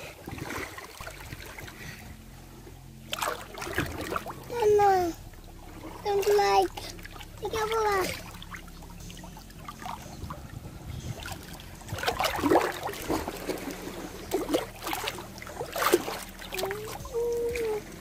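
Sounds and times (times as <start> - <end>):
seawater splashing: 0.0 - 18.0
child's voice: 4.5 - 5.2, 6.0 - 8.3, 16.5 - 18.0.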